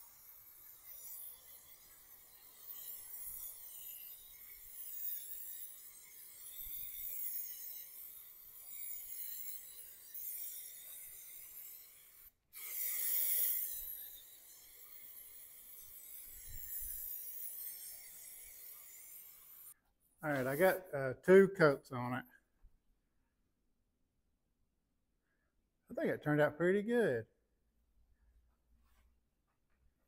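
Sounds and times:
aerosol can spraying: 12.2 - 14.0.

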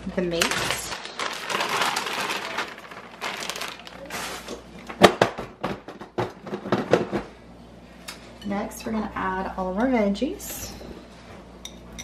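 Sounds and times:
plastic bag crinkling: 0.3 - 4.6.

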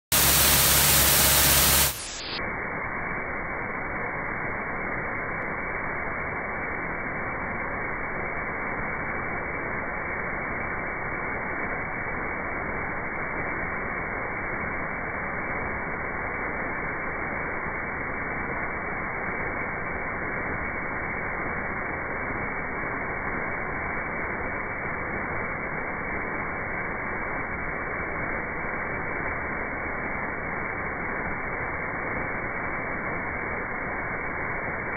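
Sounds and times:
loud harsh hiss: 0.0 - 5.7.

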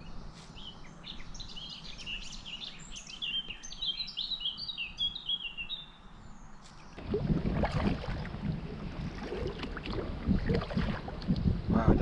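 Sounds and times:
songbird chirping: 0.0 - 7.1.

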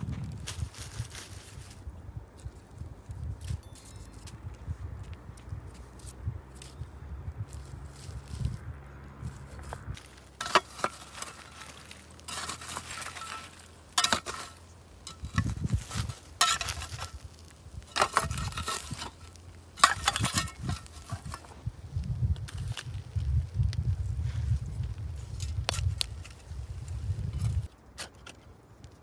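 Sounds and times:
coals crunching: 0.0 - 29.0
stones clinking and scraping: 9.3 - 21.6.

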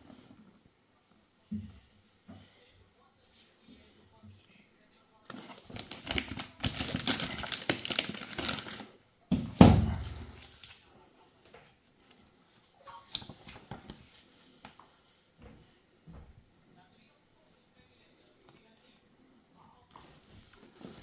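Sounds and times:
paper rustling: 5.3 - 8.9, 10.0 - 10.9, 11.6 - 15.2, 19.9 - 21.0
plastic pouch crinkling and tearing: 5.3 - 8.9
box thudding on wooden floor: 9.3 - 10.3.

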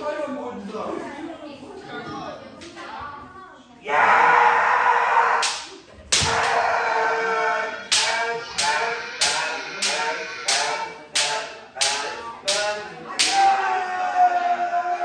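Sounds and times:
sharp cracks of bamboo swords: 5.4 - 6.6, 7.9 - 13.6.

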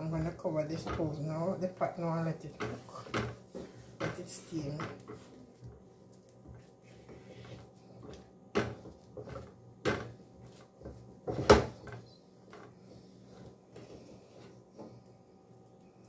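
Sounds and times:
wooden spoon scraping metal pot: 0.0 - 5.8.

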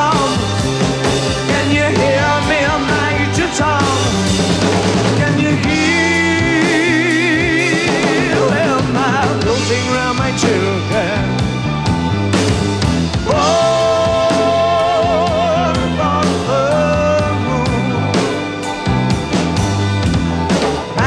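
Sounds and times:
man singing: 0.0 - 0.5, 1.4 - 4.2, 5.0 - 11.6, 13.2 - 18.8
drum kit: 0.0 - 21.0
electric guitar: 0.0 - 21.0.

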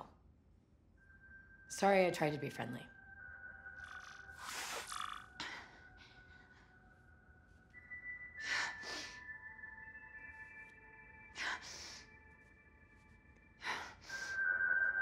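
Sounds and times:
ambient film score: 0.0 - 15.0
woman breathing: 8.4 - 9.4, 11.3 - 12.3, 13.6 - 14.5.

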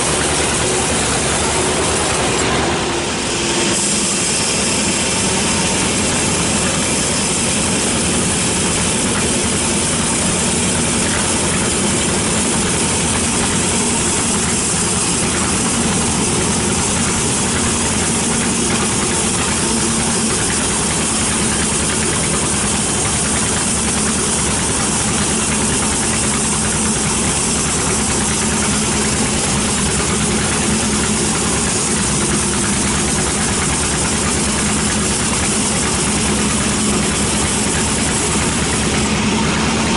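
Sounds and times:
band saw cutting a log: 0.0 - 39.9.

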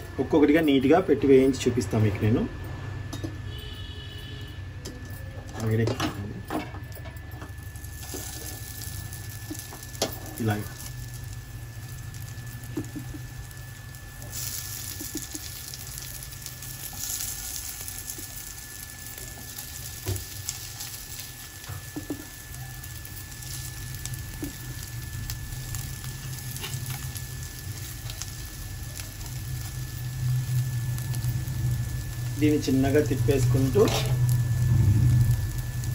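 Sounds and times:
low hum: 1.1 - 35.9
oil sizzling in a pan: 7.2 - 35.9.

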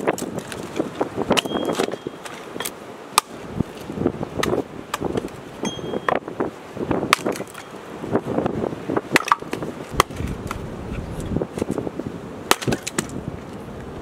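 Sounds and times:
split wood pieces knocking: 0.0 - 3.4, 7.1 - 7.6, 9.1 - 10.6, 12.5 - 13.2
axe chopping firewood: 0.0 - 6.2, 7.1 - 7.7, 9.1 - 10.6, 12.5 - 13.2.

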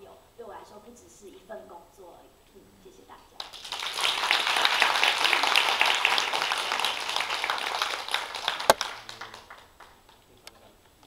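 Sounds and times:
crowd applauding: 3.4 - 10.7.

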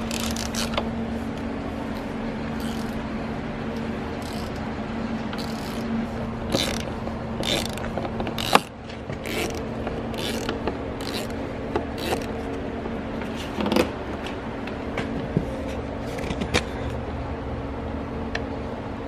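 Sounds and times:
ratchet wrench clicking: 0.0 - 0.8, 2.6 - 3.0, 4.2 - 4.6, 5.4 - 5.9, 6.5 - 11.4, 12.0 - 12.3
steady low hum: 0.0 - 19.0.

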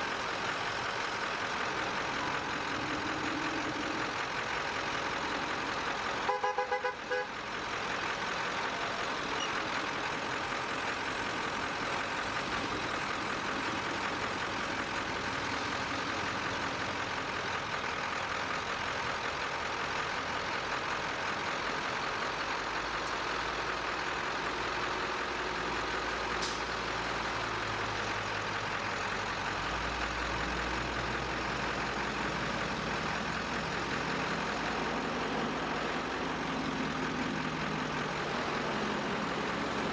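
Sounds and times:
fire engine diesel rumble: 0.0 - 39.9
vehicle horn toots: 6.3 - 7.3.

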